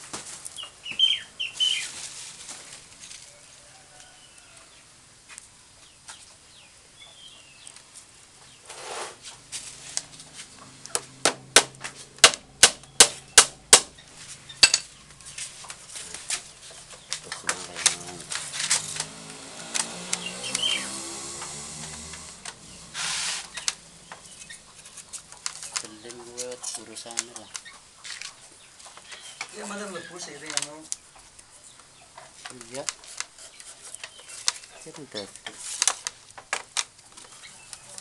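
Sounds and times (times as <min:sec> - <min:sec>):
hammer tapping: 0:11.2 - 0:14.0
rattan strips rustling: 0:13.0 - 0:38.0.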